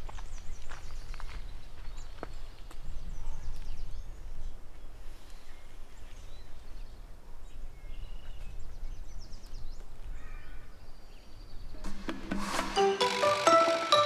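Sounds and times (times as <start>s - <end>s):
small birds chirping: 0.0s - 12.0s
buzzy bird note: 11.8s - 14.0s.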